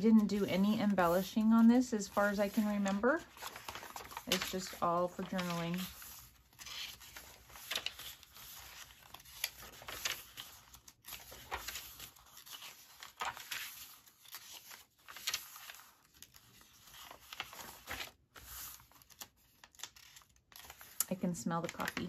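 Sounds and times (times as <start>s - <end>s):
paper pages rustling: 0.0s - 22.0s.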